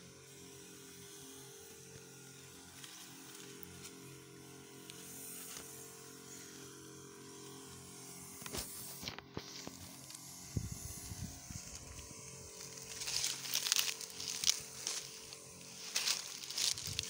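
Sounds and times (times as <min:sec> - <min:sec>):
backpack sprayer hum and hiss: 0:00.0 - 0:17.0
dry leaves rustling underfoot: 0:02.6 - 0:04.2, 0:08.6 - 0:17.0.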